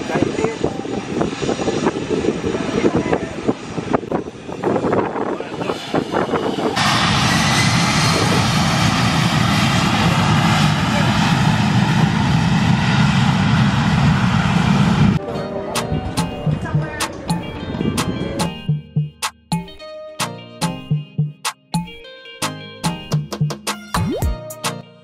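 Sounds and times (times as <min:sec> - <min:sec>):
jet engines at takeoff: 0:00.0 - 0:15.2
crowd voices: 0:15.2 - 0:18.5.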